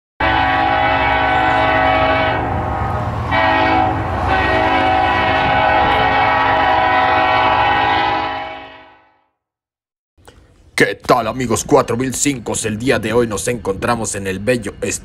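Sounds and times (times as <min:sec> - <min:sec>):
locomotive air horn chord: 0:00.2 - 0:09.3.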